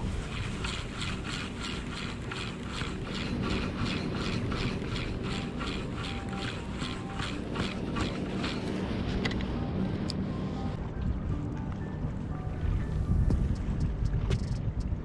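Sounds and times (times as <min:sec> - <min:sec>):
fishing reel whirring: 0:00.0 - 0:10.7
wind and surf rumble: 0:00.0 - 0:15.0.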